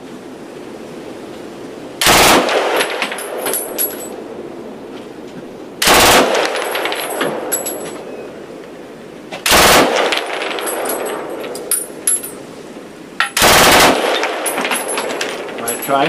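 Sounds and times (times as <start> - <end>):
machine gun bursts: 2.0 - 3.0, 5.8 - 7.1, 9.4 - 10.9, 13.4 - 15.2.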